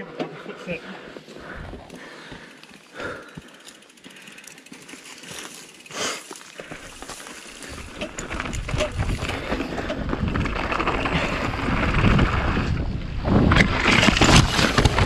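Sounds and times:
bike tyre noise: 1.0 - 15.0
bike rattling over bumps: 1.4 - 15.0
wind buffeting microphone: 7.6 - 15.0.

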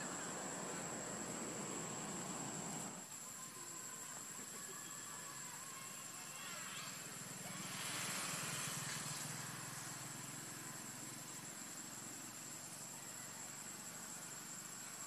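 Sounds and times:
high-pitched insect drone: 0.0 - 15.0
leaves rustling: 6.2 - 12.8.

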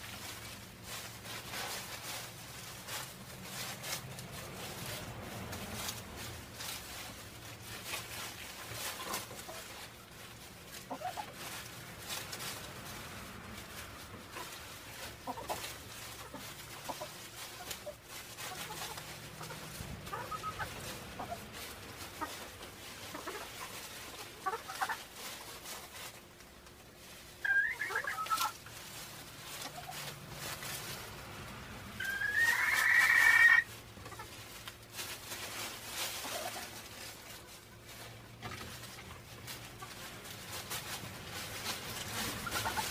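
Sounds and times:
chickens clucking: 0.0 - 42.9
loud chicken call: 20.1 - 21.4, 27.4 - 28.6, 32.0 - 33.7.

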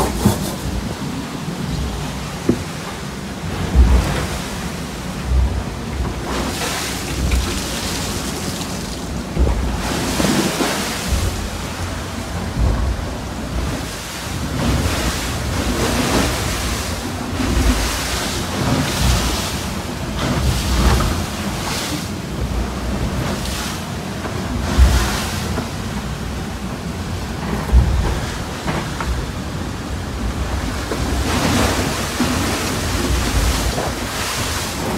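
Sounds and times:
spray and breaking water hissing: 6.4 - 9.3.

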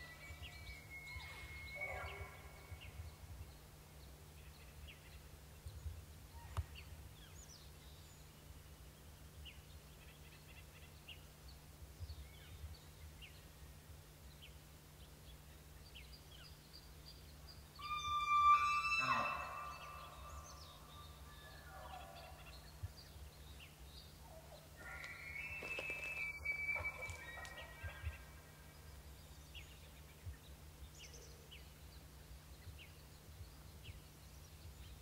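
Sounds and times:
low steady hum: 0.0 - 35.0
small birds chirping: 0.0 - 35.0
high drawn-out whistle: 17.8 - 20.6.

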